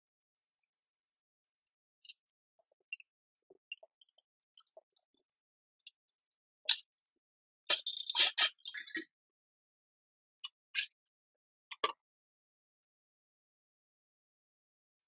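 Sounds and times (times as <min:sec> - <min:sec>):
light clicks and metallic clinks: 0:00.4 - 0:07.2.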